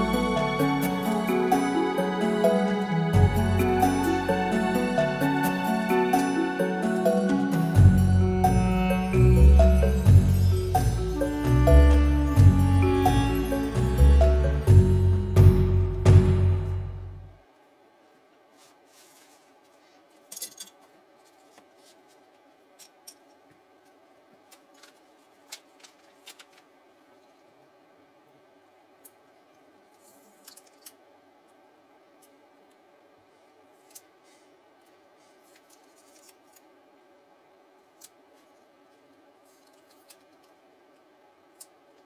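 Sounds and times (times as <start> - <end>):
paper page crackling: 24.5 - 26.7, 35.3 - 36.6.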